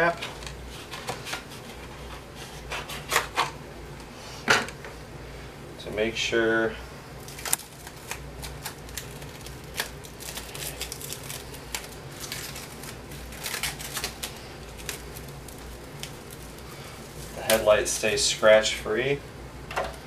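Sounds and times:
plastic cling wrap crackling: 0:07.2 - 0:18.4.

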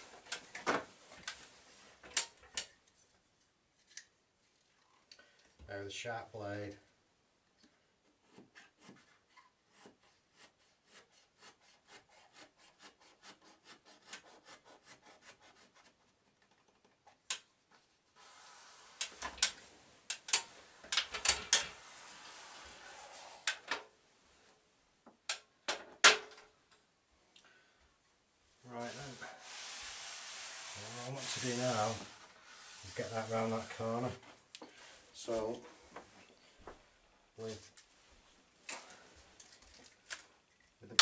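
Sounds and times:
paper rubbed against wall: 0:18.2 - 0:19.2, 0:21.7 - 0:23.5, 0:28.7 - 0:34.1.

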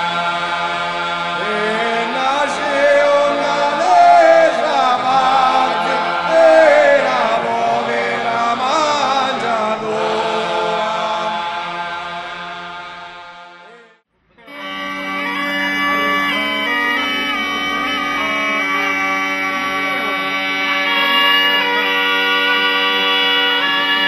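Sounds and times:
person singing ornamented chant: 0:00.0 - 0:24.0
held drone: 0:14.5 - 0:24.0.

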